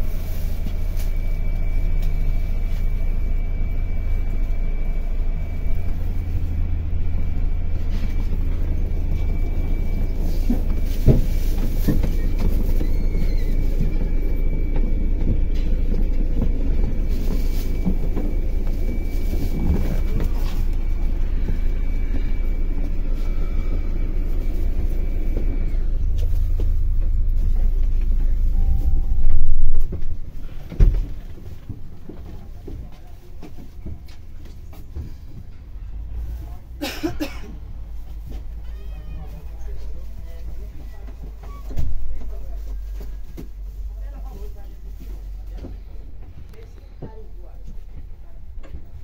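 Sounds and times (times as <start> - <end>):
high whine: 0.0 - 32.3
diesel engine idling: 0.0 - 49.0.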